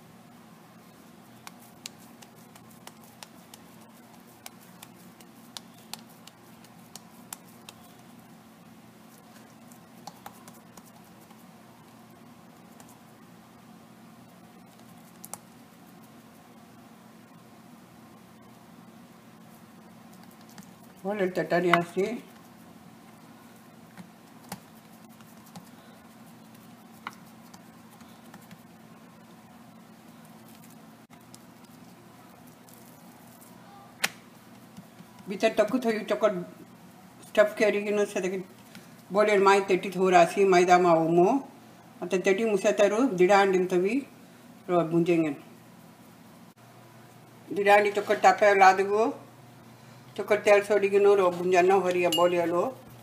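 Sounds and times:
faint steady hum: 0.0s - 53.0s
fingers patting dough: 0.9s - 13.2s, 14.2s - 16.6s, 19.4s - 33.4s, 34.0s - 36.0s
hands tapping dough on board: 1.4s - 7.8s.

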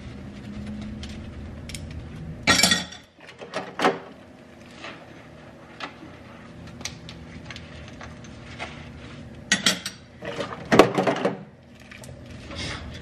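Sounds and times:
dishes clinking in a sink: 2.5s - 3.1s, 9.5s - 11.4s.

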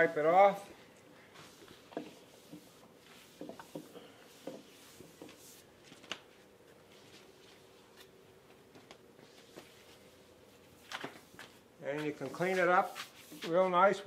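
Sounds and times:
hand wiping wooden shelf: 1.2s - 5.8s, 9.2s - 14.0s.

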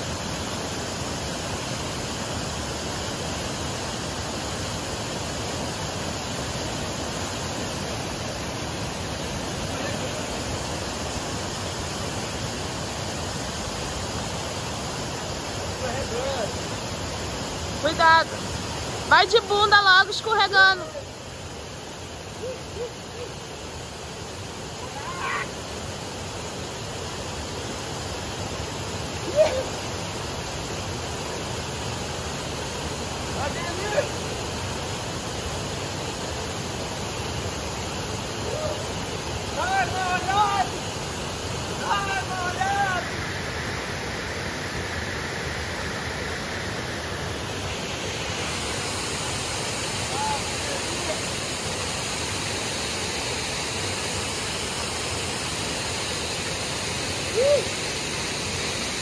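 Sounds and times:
river water over rocks: 0.0s - 59.0s
voice-like calls: 22.3s - 23.5s, 57.3s - 57.9s.

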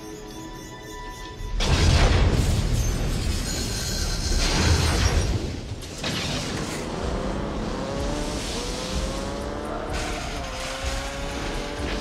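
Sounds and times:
engine revving: 6.4s - 12.0s.

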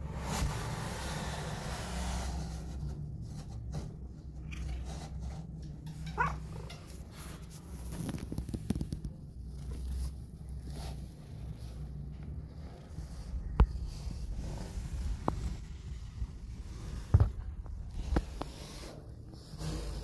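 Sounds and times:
soft clicks and rustling: 6.6s - 10.2s.

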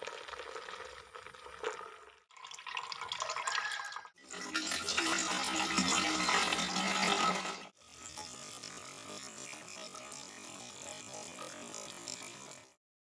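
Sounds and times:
liquid pouring and splashing: 0.0s - 7.7s.

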